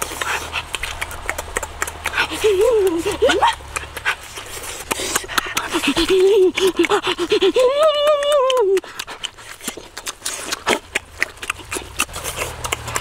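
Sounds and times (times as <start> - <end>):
wet chewing and lip-smacking: 0.0 - 13.0
person humming: 1.9 - 3.8, 5.7 - 9.0.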